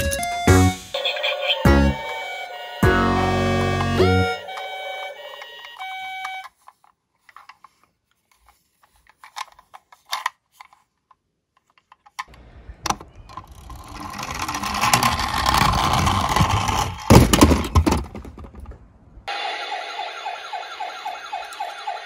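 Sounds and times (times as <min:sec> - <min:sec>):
toy wheels whirring on wood: 0:01.8 - 0:07.7, 0:13.3 - 0:17.6.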